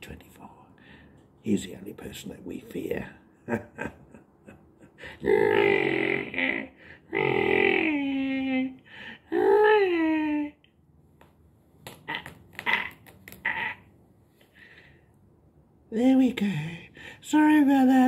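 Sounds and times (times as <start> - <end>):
man making wordless vocal noises: 5.0 - 10.7, 15.9 - 18.0.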